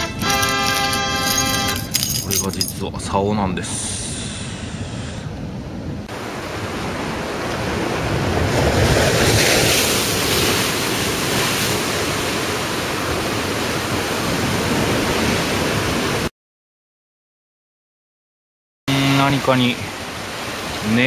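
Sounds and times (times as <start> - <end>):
surf breaking on rocky shore: 6.1 - 16.3.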